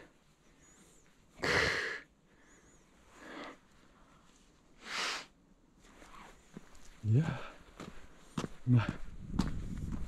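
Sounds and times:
person breathing heavily: 0.0s - 5.4s, 7.2s - 8.2s.

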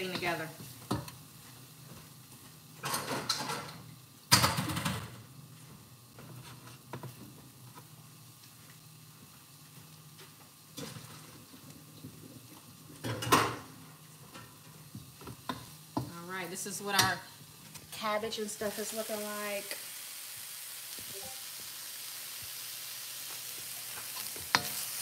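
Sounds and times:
pot and dishes clattering: 2.8s - 5.0s, 13.0s - 13.7s.

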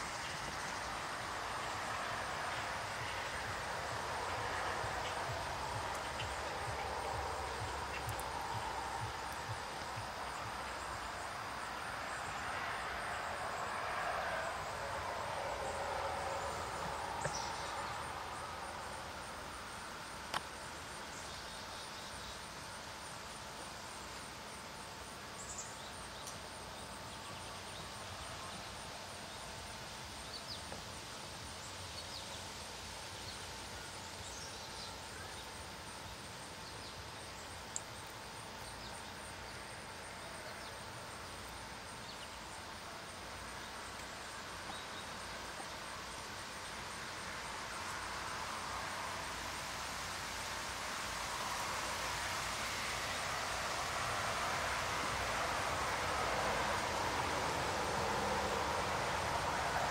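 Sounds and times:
broad rushing noise: 0.0s - 20.8s, 42.6s - 59.9s
faint steady whine: 0.0s - 59.9s.

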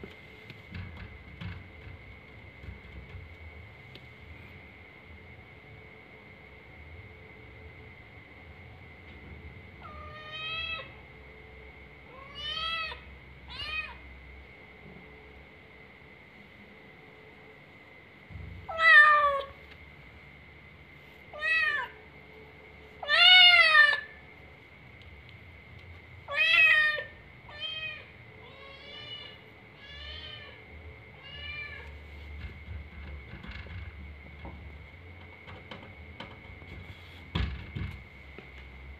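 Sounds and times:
cat meowing: 18.7s - 19.5s.

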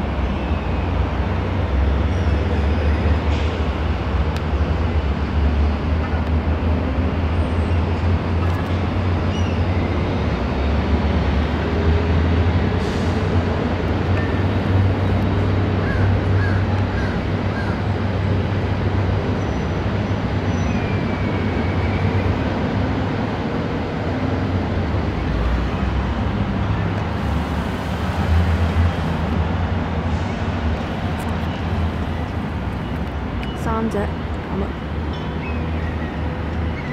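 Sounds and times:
low rumble of road traffic: 0.0s - 36.9s.

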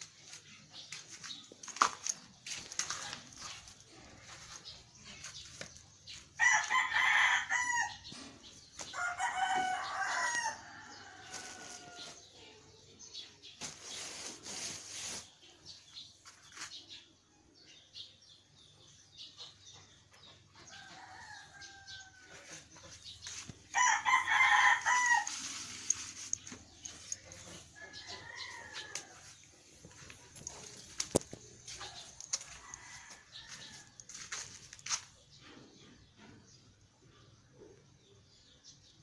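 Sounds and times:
rooster crowing: 6.4s - 8.0s, 9.0s - 12.2s, 23.7s - 25.4s, 27.8s - 29.3s.

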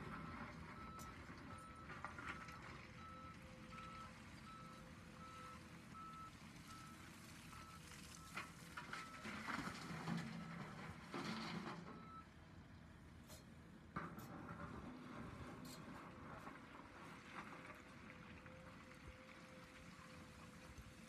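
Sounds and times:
reversing alarm beeping: 0.1s - 8.4s.

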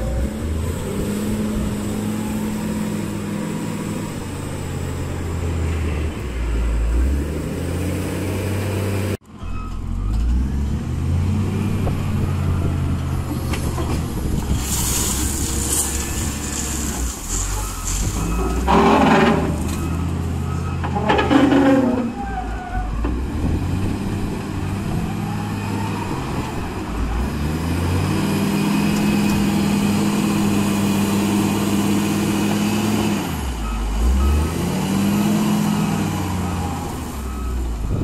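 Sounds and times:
diesel engine revving: 0.0s - 38.0s
gravel pouring into truck bed: 14.5s - 18.4s.

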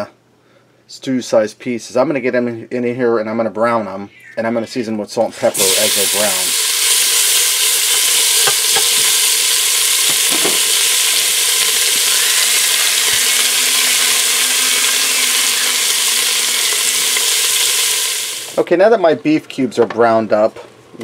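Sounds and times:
meat sizzling in oil: 5.6s - 18.6s.

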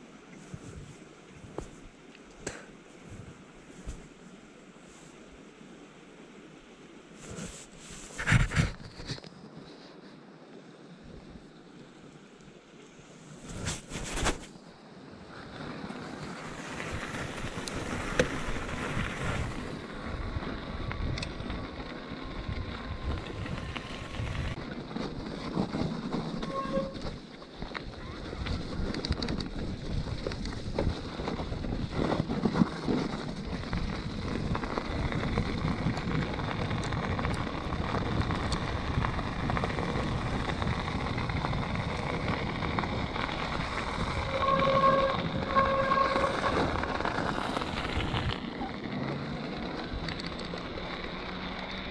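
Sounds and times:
wind rush on microphone: 0.4s - 2.0s, 7.3s - 9.2s, 15.3s - 50.4s
bike tyres crunching over gravel: 12.9s - 51.9s.

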